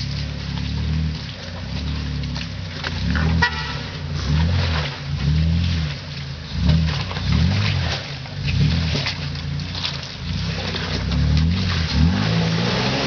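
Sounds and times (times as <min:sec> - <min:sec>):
truck engine revving: 0:00.0 - 0:13.0.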